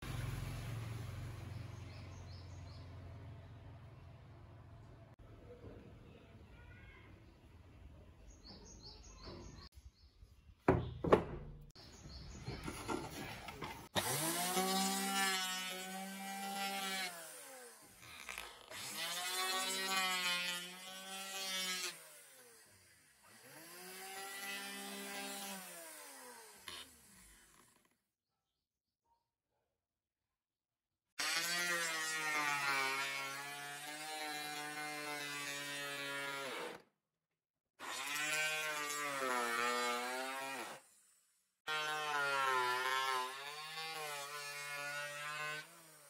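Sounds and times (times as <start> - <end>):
knocks: 10.7 - 11.6
electric planer planing wood: 12.7 - 27.9, 31.2 - 36.8, 37.8 - 40.8, 41.7 - 46.0.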